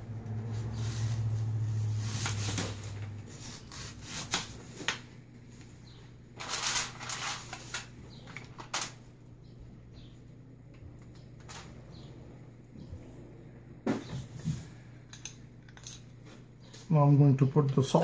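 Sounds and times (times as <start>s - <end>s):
foil crinkling: 6.4s - 9.0s.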